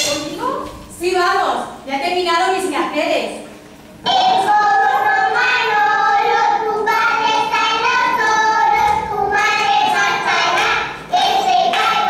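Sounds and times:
high voices singing: 0:04.0 - 0:12.0.

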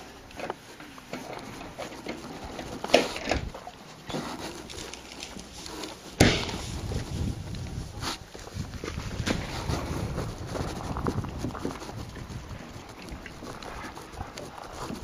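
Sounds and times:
wind rumbling on microphone: 0:01.3 - 0:15.0
sharp knocks: 0:06.2 - 0:06.6.

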